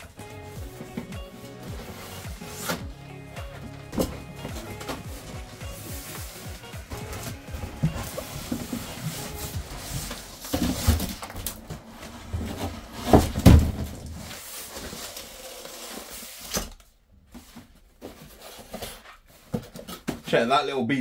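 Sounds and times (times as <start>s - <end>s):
cardboard packaging rustling: 0.0s - 20.3s.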